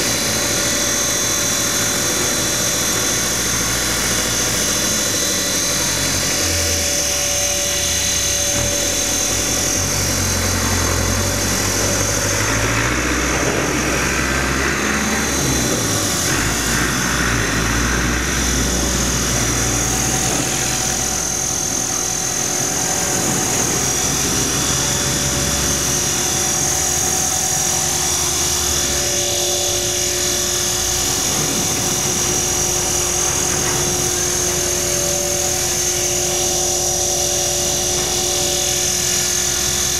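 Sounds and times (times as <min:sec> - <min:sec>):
rc helicopter motor whine: 0:00.0 - 0:39.9
rotor blades whirring: 0:00.0 - 0:39.9.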